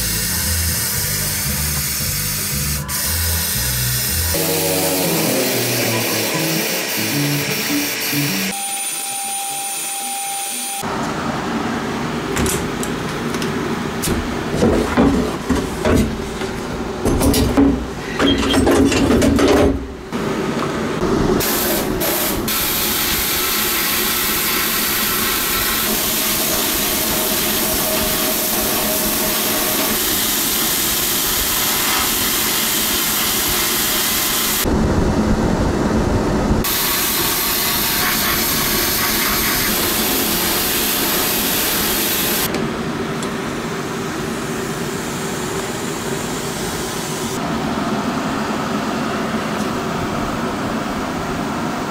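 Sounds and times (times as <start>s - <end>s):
pressure washer spraying metal: 0.0s - 9.9s, 21.4s - 34.7s, 36.6s - 42.5s.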